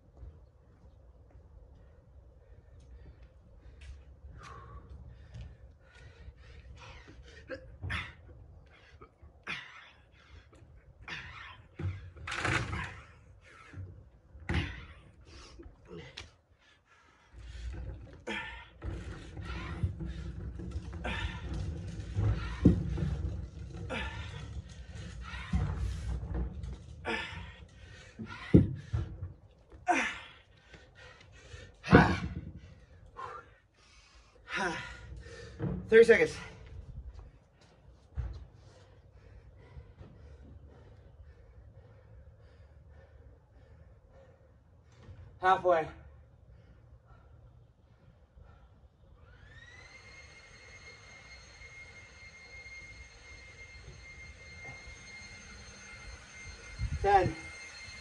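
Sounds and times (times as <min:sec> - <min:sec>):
man breathing hard: 0:02.3 - 0:12.2, 0:14.7 - 0:35.8, 0:37.6 - 0:45.4, 0:46.2 - 0:49.3
heavy dumbbell thumps: 0:31.8 - 0:32.6.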